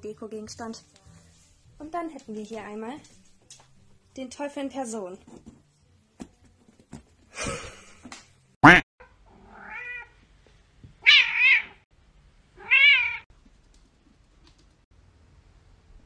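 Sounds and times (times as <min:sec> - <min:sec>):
cat crying: 0:09.4 - 0:10.2, 0:11.0 - 0:11.8, 0:12.6 - 0:13.3
cat meowing: 0:09.4 - 0:10.2, 0:11.0 - 0:11.8, 0:12.6 - 0:13.3.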